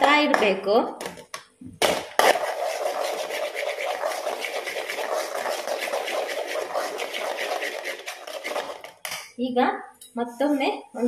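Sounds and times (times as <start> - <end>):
spoon scraping a pan: 2.2 - 9.0.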